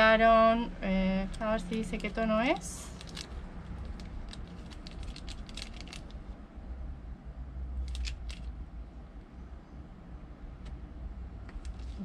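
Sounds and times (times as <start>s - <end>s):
low steady rumble: 0.0s - 12.0s
paper sachets crinkling: 1.6s - 6.2s.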